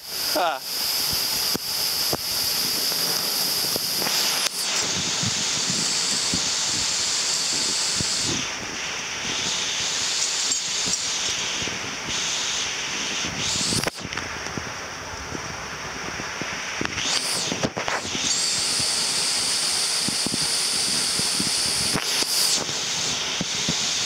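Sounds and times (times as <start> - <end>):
waterfall rushing hiss: 0.0 - 2.0.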